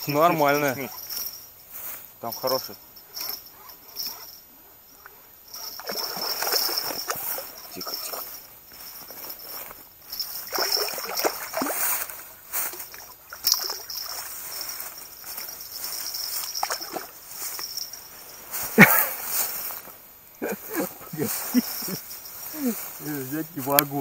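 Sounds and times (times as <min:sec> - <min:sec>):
rustling in dry grass: 0:00.0 - 0:24.0
fish splashing in water: 0:05.8 - 0:07.5, 0:10.5 - 0:12.0, 0:16.5 - 0:17.2.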